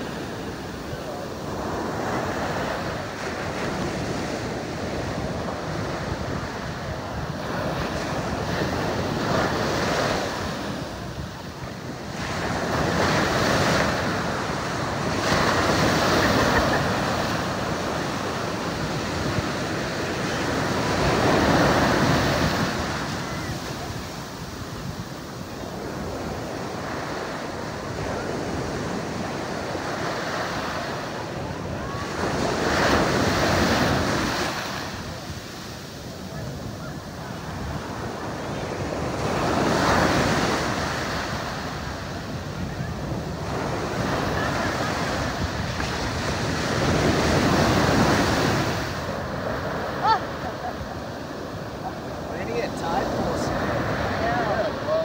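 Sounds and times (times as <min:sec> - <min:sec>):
ocean surf breaking: 0:00.0 - 0:55.0.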